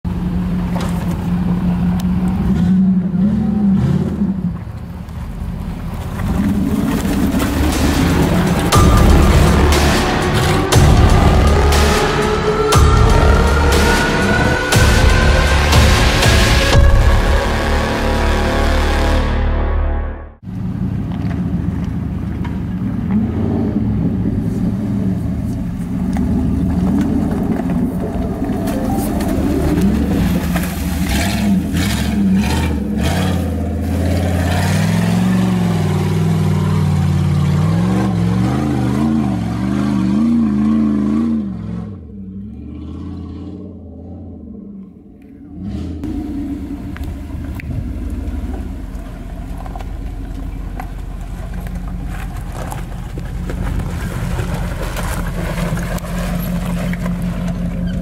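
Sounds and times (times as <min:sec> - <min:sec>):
engine running under throttle: 0:22.9 - 0:58.0.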